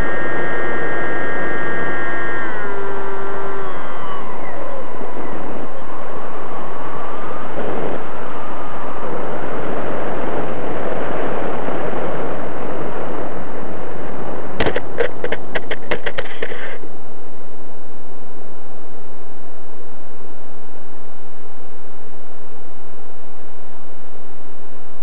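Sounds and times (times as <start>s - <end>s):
model plane motor: 0.0s - 16.8s
rushing air: 0.0s - 16.9s.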